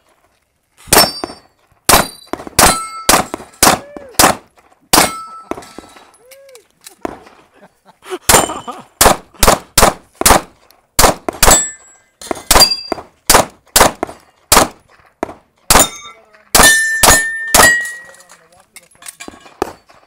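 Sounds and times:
steel target plates ringing: 0.9 - 3.6, 5.0 - 6.2, 8.3 - 8.8, 11.5 - 13.0, 15.7 - 18.4
pistol shots: 0.9 - 5.9, 8.2 - 18.2, 19.4 - 19.9.

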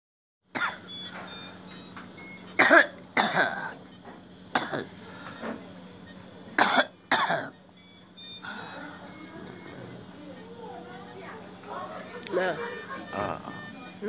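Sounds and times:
woman coughing: 0.6 - 0.9, 2.6 - 3.8, 4.6 - 4.9, 6.6 - 7.6.

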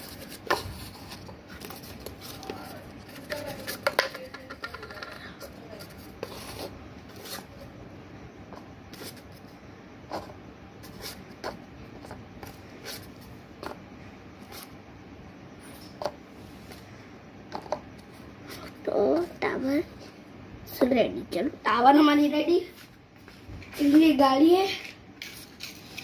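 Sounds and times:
paper cups rustling: 0.0 - 7.7
paper cups tapping on floor: 0.4 - 6.4, 17.5 - 17.9.

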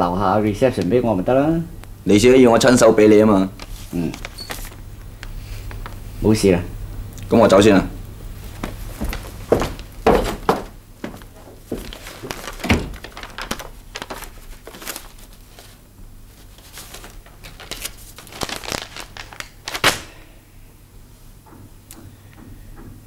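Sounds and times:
paper envelope rustling: 3.4 - 6.1, 8.4 - 20.2.

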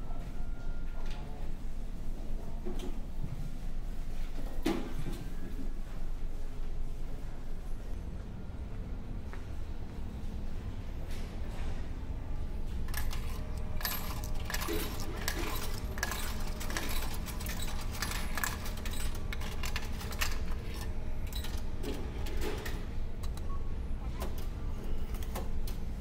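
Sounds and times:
coins jingling: 12.9 - 21.6.

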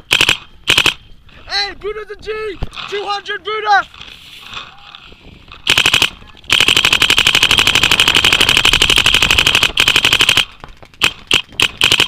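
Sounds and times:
paintball marker rapid firing: 0.0 - 1.0, 5.6 - 12.0.

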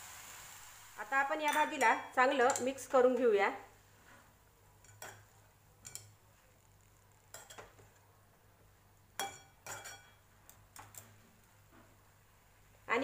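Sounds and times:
metal spatula clinking on pan: 1.4 - 3.4, 4.8 - 6.2, 7.3 - 7.8, 9.2 - 11.2.

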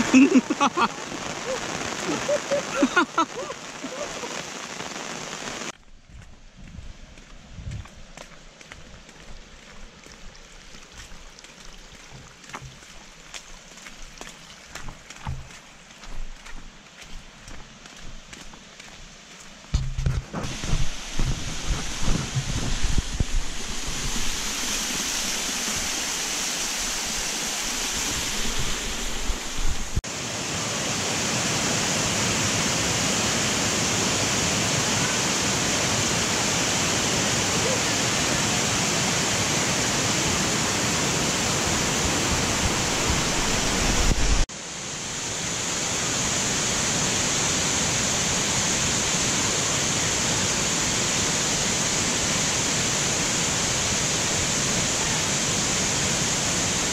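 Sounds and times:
waterfall rushing: 0.0 - 5.7, 20.4 - 56.9.

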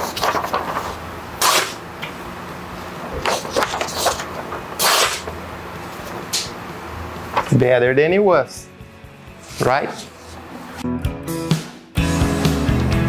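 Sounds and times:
knife slicing paper: 0.0 - 1.8, 3.3 - 5.3
paper rustling: 0.0 - 1.8, 3.0 - 6.5, 7.3 - 7.6.

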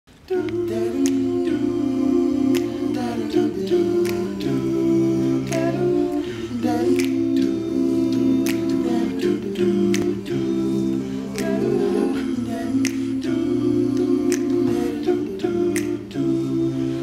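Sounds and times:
male a cappella group singing: 0.1 - 17.0
sharp clicks on the beat: 6.8 - 11.6, 15.7 - 16.2.

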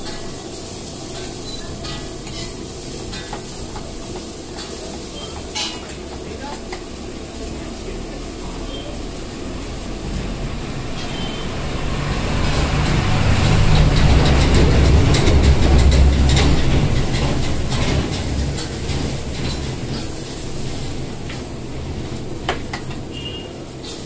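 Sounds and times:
low rumble of heavy vehicle passing: 7.3 - 23.8.

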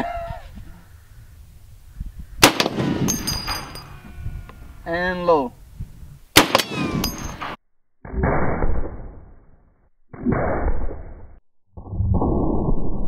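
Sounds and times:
rifle shots booming: 2.4 - 3.9, 6.3 - 7.6.

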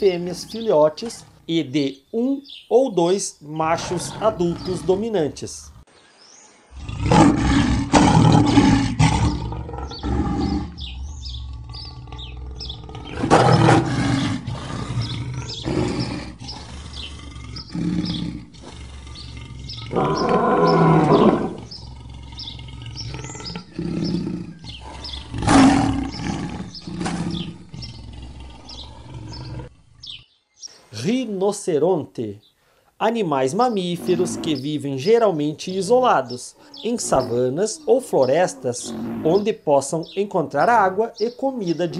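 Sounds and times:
birds chirping faintly: 0.0 - 41.9
lions roaring: 3.7 - 5.9, 6.7 - 30.1, 34.0 - 34.6, 36.6 - 39.5.

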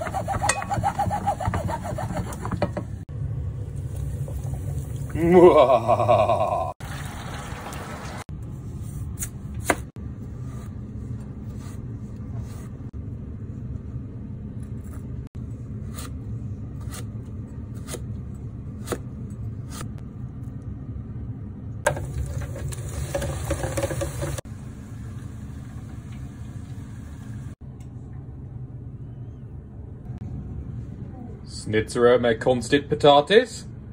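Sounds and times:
steady low hum: 8.3 - 22.7, 24.4 - 33.9
knife slicing potato on board: 9.2 - 9.9, 16.8 - 17.1, 17.7 - 18.1.

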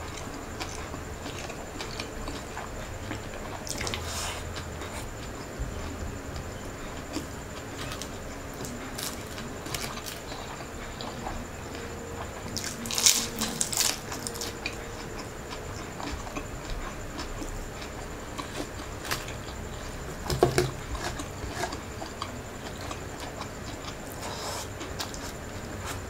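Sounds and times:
wet smacking chewing: 0.0 - 26.0.

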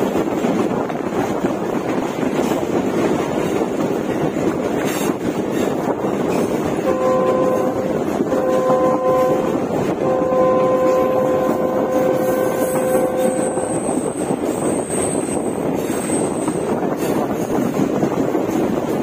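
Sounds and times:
train coaches rumbling: 0.0 - 19.0
train horn blasts: 6.8 - 14.0.

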